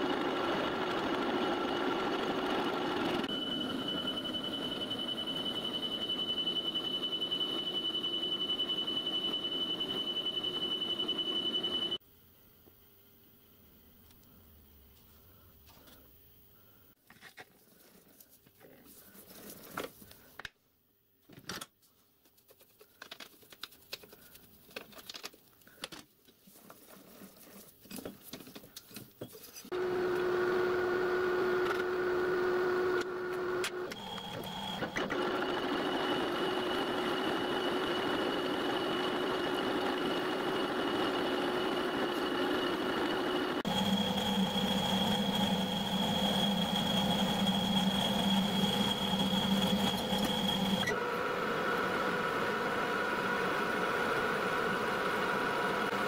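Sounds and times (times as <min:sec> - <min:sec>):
metalworking lathe humming: 0:29.7 - 0:56.0.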